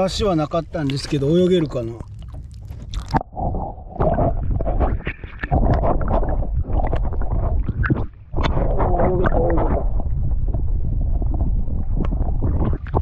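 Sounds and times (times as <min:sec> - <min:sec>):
muffled underwater gurgling: 0:00.0 - 0:13.0.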